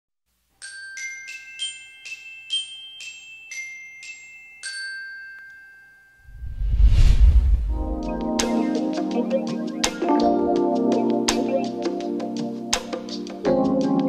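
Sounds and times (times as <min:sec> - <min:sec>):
glockenspiel jingle: 0:00.6 - 0:06.2
deep whoosh: 0:06.3 - 0:08.5.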